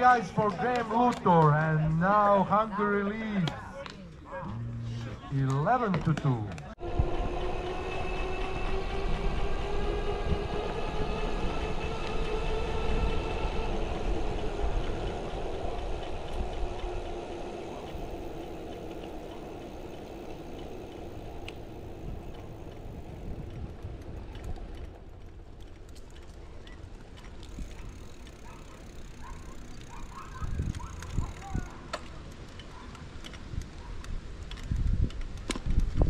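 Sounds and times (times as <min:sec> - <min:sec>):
vehicle engine drone: 0:06.8 - 0:31.9.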